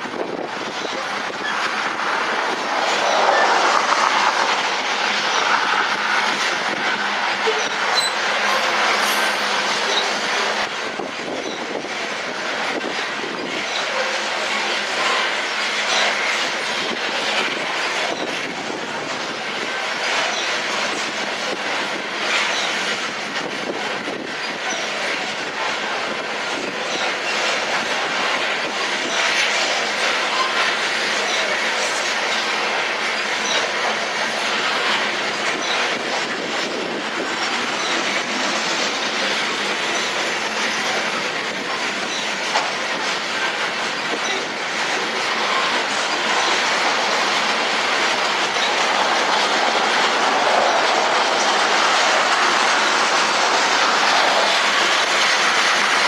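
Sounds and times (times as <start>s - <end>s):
train wheels rattling on rail: 0.0s - 56.0s
wheel squeals: 0.7s - 10.4s, 11.4s - 11.7s, 19.9s - 20.9s, 22.3s - 23.0s, 24.4s - 25.1s, 29.0s - 43.1s, 43.9s - 56.0s.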